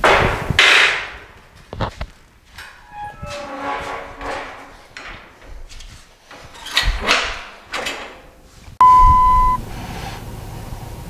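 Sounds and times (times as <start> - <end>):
trailer tailgate rattling and clanking: 6.4 - 8.3
steady beep: 8.8 - 9.6.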